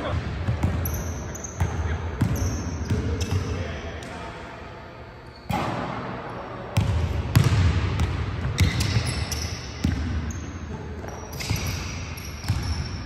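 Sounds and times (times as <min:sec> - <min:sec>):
basketballs bouncing on wooden floor: 0:00.0 - 0:01.0, 0:06.8 - 0:09.2, 0:09.8 - 0:10.3, 0:11.0 - 0:13.0.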